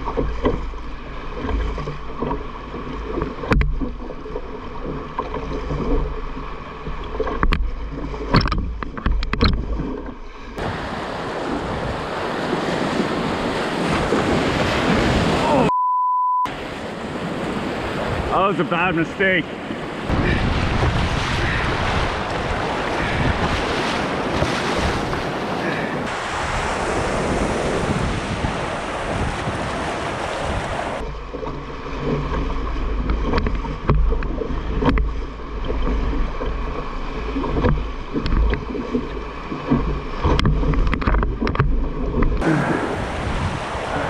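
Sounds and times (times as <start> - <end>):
paddle stroke splashes: 0.0 - 15.7, 16.5 - 44.0
rushing churning water: 0.0 - 15.7, 16.5 - 44.0
waves breaking around canoe: 0.0 - 15.7, 16.5 - 44.0
wind buffeting microphone: 10.6 - 15.4, 16.5 - 18.3, 19.4 - 31.1, 39.9 - 44.0.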